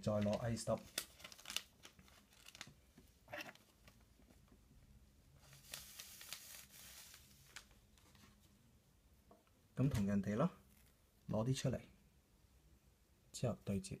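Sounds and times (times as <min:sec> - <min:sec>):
faint rustles of fibres: 0:05.3 - 0:08.7.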